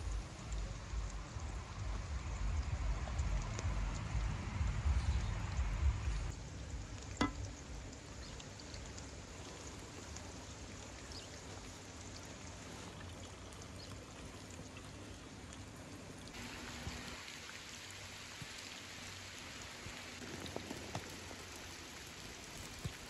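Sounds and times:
stream rushing: 15.6s - 23.0s.

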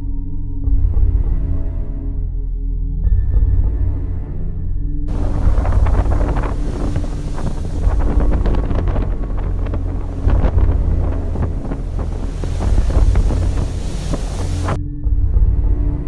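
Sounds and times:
spray hissing against hull: 5.1s - 14.8s
waves breaking: 5.1s - 14.8s
wind buffeting microphone: 5.1s - 14.8s
deep uneven rumble: 5.1s - 16.0s.

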